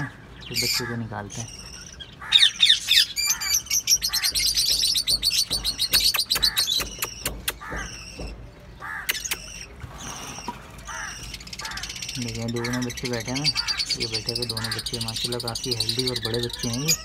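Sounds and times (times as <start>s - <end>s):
parakeets screeching: 0.0s - 17.0s
sharp clicks: 9.0s - 9.6s.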